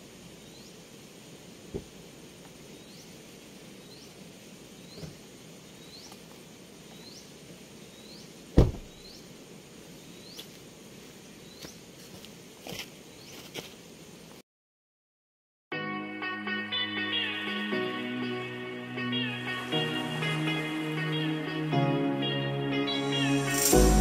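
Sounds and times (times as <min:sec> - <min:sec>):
outdoor hush: 0:00.0 - 0:12.1
car door slamming: 0:08.5 - 0:09.0
high rising chirp: 0:22.4 - 0:24.0.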